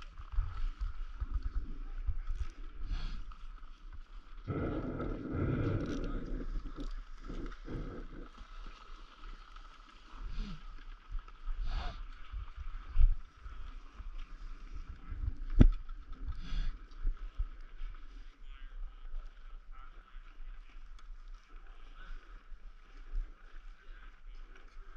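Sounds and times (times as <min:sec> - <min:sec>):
wind on microphone: 0:04.4 - 0:08.3.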